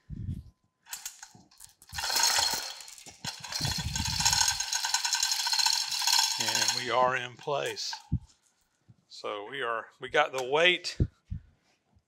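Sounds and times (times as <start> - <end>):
chain hoist rattling and clicking: 0.9 - 8.2.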